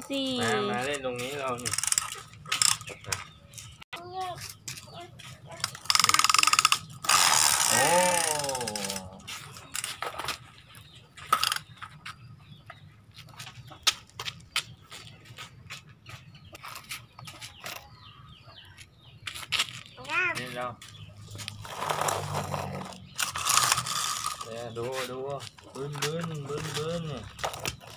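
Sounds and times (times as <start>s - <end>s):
person's voice: 0.0s - 1.0s
plastic toys clicking and knocking: 0.1s - 10.6s, 11.2s - 12.0s, 19.2s - 24.6s, 25.4s - 27.9s
plastic toy wheels scraping concrete: 0.2s - 3.8s, 4.4s - 12.0s, 19.2s - 27.9s.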